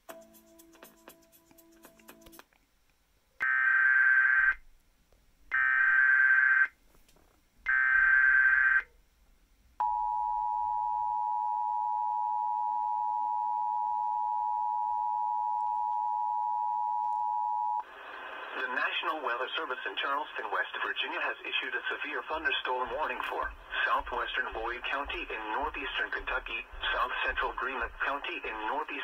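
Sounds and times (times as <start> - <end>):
long steady attention tone: 9.8 - 29.0.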